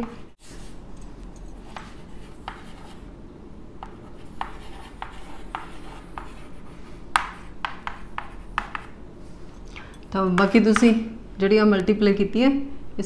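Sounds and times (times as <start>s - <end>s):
chalk tapping and scraping on blackboard: 1.7s - 3.0s, 3.8s - 9.0s.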